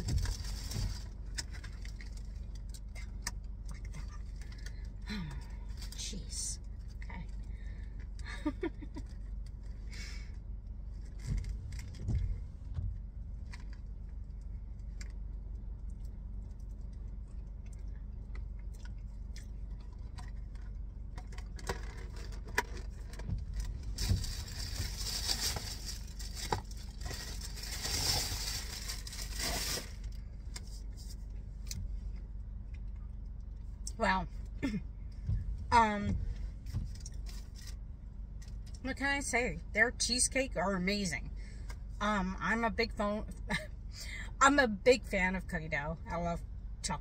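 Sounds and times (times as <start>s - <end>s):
crinkling and rustling: 0.0s - 5.0s, 10.9s - 33.7s, 35.1s - 38.8s
steady low hum: 0.0s - 47.0s.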